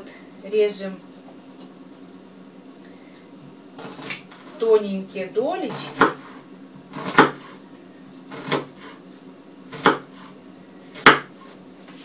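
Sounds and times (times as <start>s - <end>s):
knife slicing onion: 3.8s - 4.6s, 5.7s - 7.6s, 8.3s - 9.0s, 9.7s - 12.0s.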